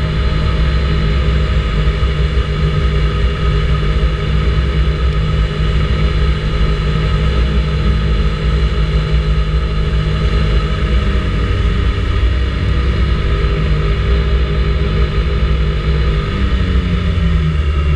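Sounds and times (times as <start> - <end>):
scooter engine cruising: 0.0 - 17.9
wind rumble on microphone: 0.0 - 17.9.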